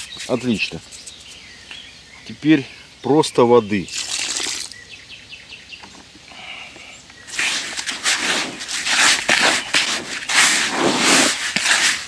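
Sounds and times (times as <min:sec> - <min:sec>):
water splashing into bucket: 0:03.9 - 0:04.8.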